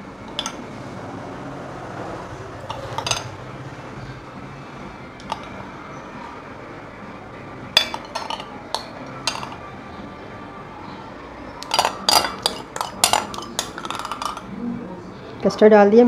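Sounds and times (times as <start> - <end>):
metal spoon clinking on glass: 0.3 - 0.6, 2.7 - 3.4, 5.2 - 5.6, 7.8 - 9.7, 11.6 - 14.5.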